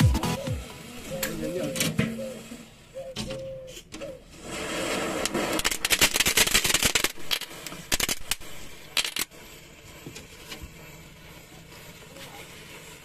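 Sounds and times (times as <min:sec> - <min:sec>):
matches hissing: 0:04.6 - 0:13.0
matches crackling and popping: 0:05.0 - 0:13.0.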